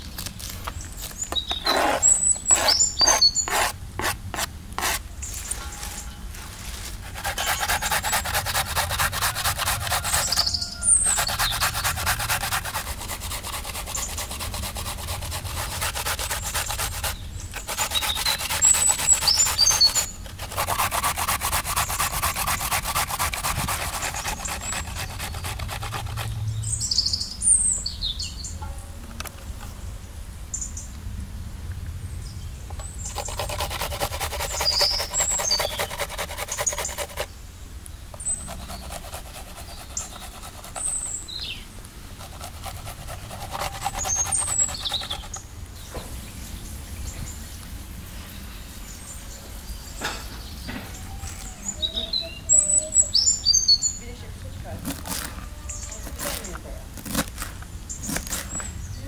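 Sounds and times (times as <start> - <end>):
birds chirping: 0.0 - 31.0, 32.0 - 59.0
carrot grating on metal grater: 1.6 - 5.0, 7.0 - 26.4, 33.1 - 37.3, 38.2 - 41.2, 42.1 - 45.4, 54.8 - 55.4, 56.0 - 58.6.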